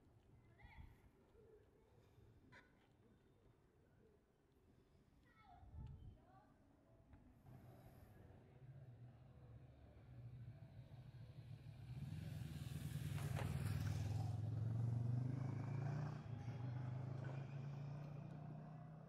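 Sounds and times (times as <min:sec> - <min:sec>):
vehicle passing by: 0:11.0 - 0:19.0.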